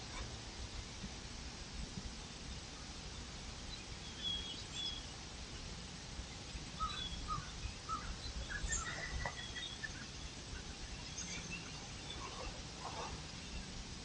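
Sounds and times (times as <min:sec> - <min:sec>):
steady low background noise: 0:00.0 - 0:14.0
faint bird calls: 0:06.8 - 0:13.8.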